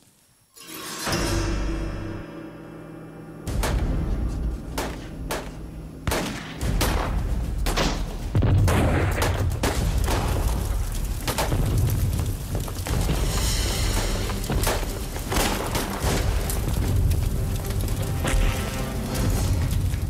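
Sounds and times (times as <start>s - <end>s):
gunshots: 4.7s - 11.8s.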